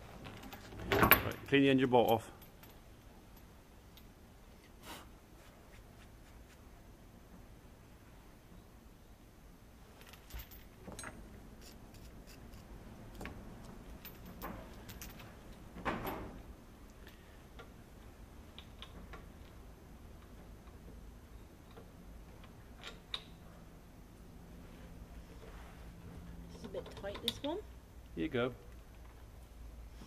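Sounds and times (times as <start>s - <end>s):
metal chain clinking and scraping: 0.2s - 4.1s, 9.9s - 16.2s.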